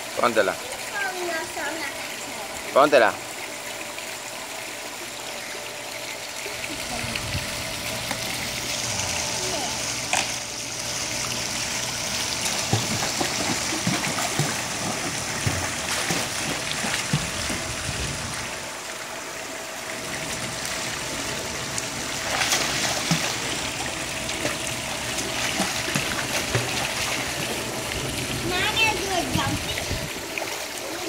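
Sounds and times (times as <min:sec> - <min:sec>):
water running steadily: 0:00.0 - 0:31.0
light splashes from swimming: 0:22.2 - 0:27.8.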